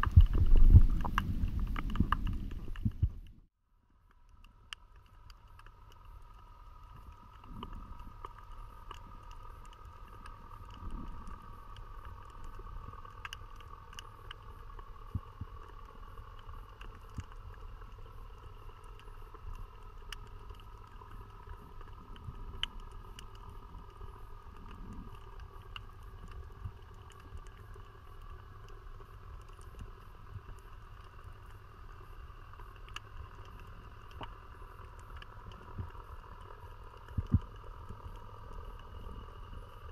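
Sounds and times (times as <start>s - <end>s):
faint steady whine: 0.0s - 39.9s
muffled underwater rumble: 0.0s - 39.9s.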